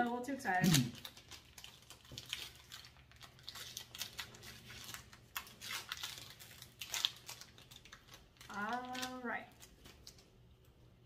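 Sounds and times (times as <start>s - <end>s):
foil wrapper crinkling and tearing: 0.4s - 10.8s.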